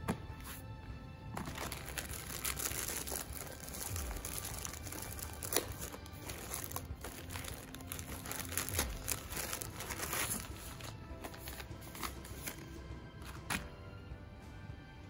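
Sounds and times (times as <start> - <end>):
plastic packaging crinkling: 1.4 - 12.6.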